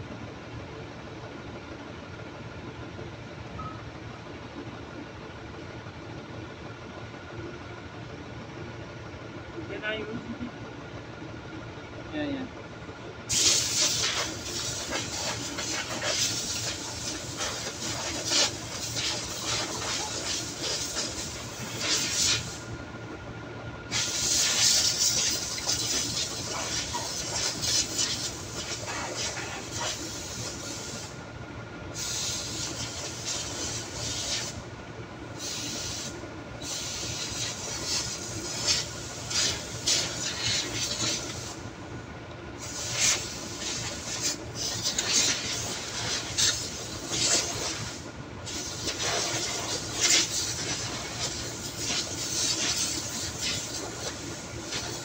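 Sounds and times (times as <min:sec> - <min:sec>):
steady hiss: 0:13.3 - 0:22.7, 0:23.9 - 0:31.1, 0:32.0 - 0:34.6, 0:35.4 - 0:41.7, 0:42.6 - 0:55.0.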